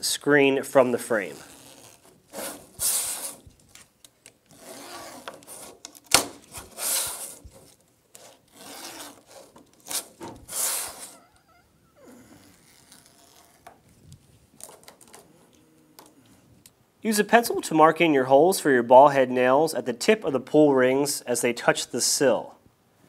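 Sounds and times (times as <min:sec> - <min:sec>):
utility knife cutting mesh: 0:01.4 - 0:03.5.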